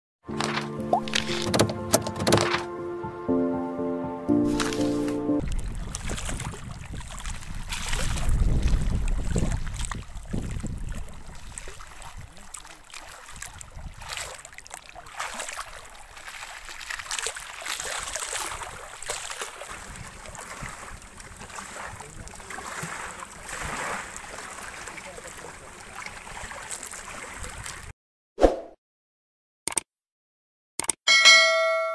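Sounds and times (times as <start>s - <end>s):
river water splashing and lapping: 0.3s - 3.2s, 4.3s - 27.9s
wind rumbling on microphone: 5.4s - 12.5s, 13.2s - 14.2s, 18.0s - 22.5s.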